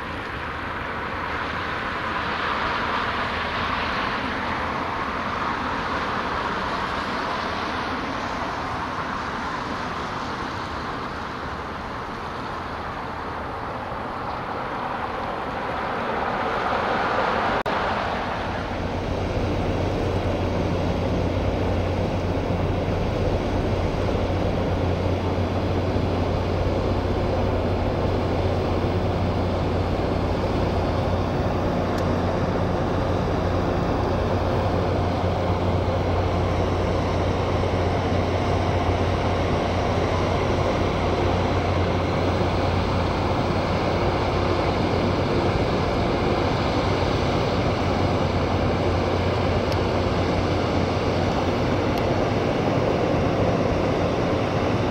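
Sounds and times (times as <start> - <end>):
ship diesel engines humming: 0.0 - 54.9.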